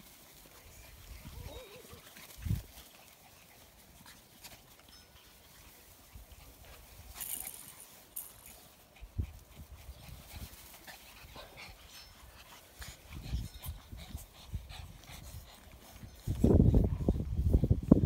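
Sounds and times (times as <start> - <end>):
puppies panting and scuffling: 0.0 - 18.0
puppy whimpers: 1.3 - 2.1.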